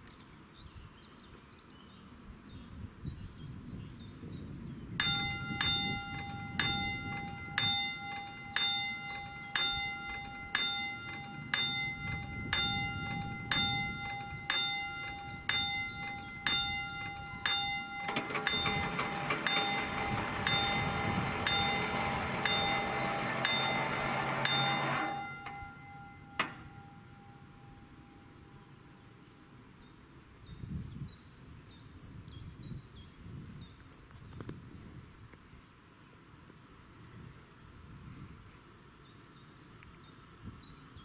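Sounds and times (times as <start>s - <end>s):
level crossing warning bell: 5.0s - 28.9s.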